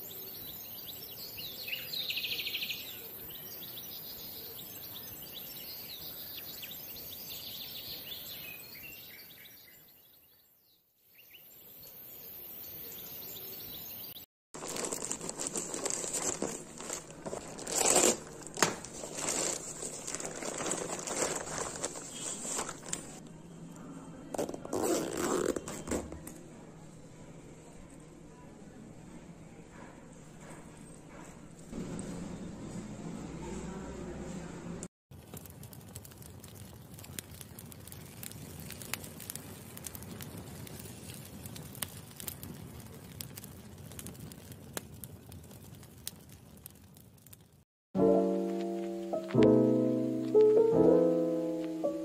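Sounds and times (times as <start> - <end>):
plastic mailer bag crinkling: 14.6 - 23.2, 24.4 - 26.4.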